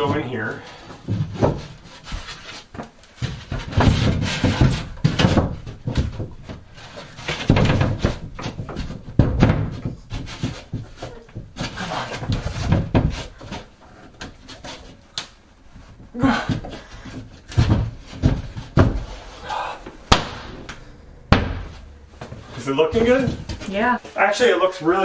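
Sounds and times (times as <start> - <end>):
panel knocks and bumps: 19.9 - 23.7.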